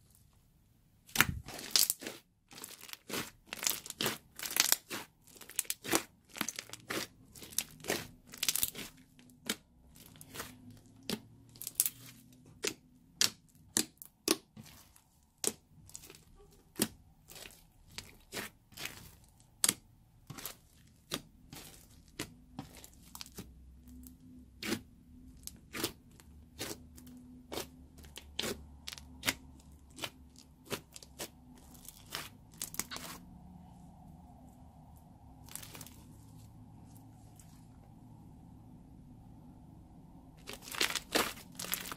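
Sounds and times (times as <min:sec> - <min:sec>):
slime popping and crackling: 0:01.1 - 0:33.2, 0:40.4 - 0:41.9.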